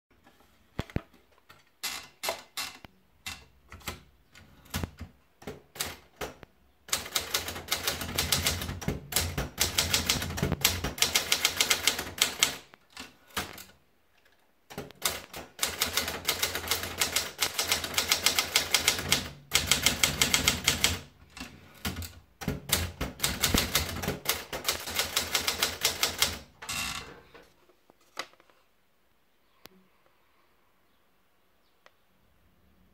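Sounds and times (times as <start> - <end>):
rapid typewriter typing: 3.3 - 13.8, 14.7 - 26.5.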